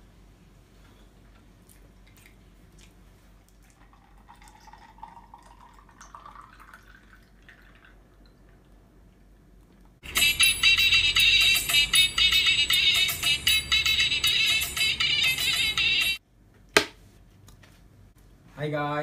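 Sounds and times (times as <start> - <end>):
milk pouring into glass jar: 3.7 - 8.0.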